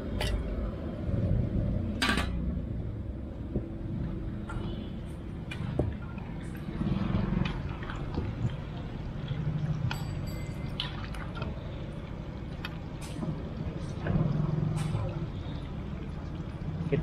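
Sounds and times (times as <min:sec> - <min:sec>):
low steady rumble: 0:00.0 - 0:17.0
food frying in hot oil: 0:05.2 - 0:17.0.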